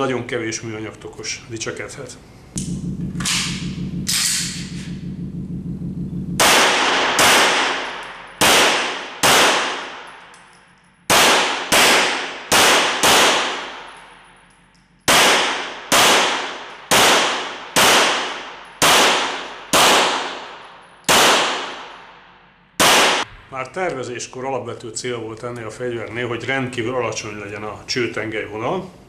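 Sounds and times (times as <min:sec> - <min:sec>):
pistol shots echoing indoors: 0:06.4 - 0:23.4.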